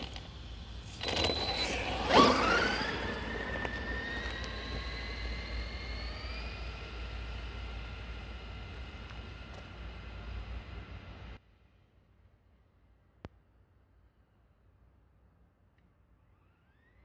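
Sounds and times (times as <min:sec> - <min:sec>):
electric motor whining: 0:00.0 - 0:11.4.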